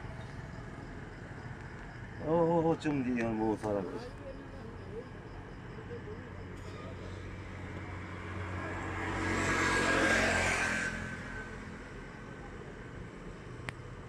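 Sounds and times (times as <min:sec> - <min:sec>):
road vehicle passing: 0:04.4 - 0:14.0.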